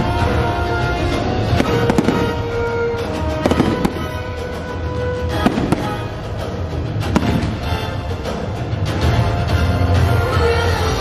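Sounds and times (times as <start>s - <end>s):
fireworks bangs and crackles: 0.0s - 8.5s
music soundtrack: 0.0s - 11.0s.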